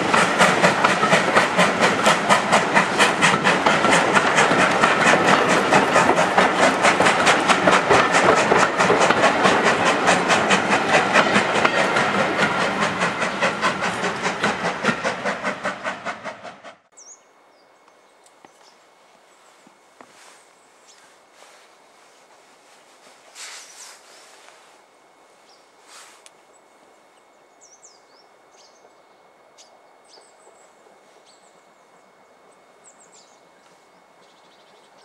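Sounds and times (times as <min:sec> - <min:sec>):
steam hiss: 0:00.0 - 0:16.7, 0:20.1 - 0:26.4
steam locomotive chuffing: 0:00.0 - 0:16.9.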